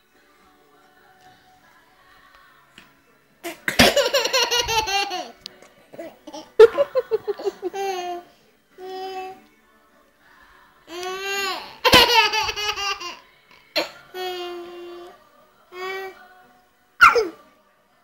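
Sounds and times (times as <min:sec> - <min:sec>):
baby laughing: 0:03.5 - 0:05.4, 0:06.0 - 0:08.2, 0:10.9 - 0:13.2.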